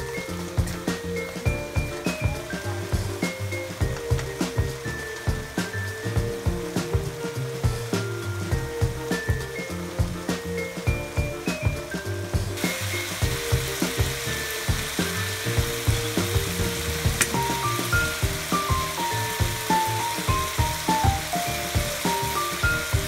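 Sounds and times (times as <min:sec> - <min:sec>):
background music with beat: 0:00.0 - 0:23.0
vegetables sizzling in oil: 0:12.4 - 0:23.0.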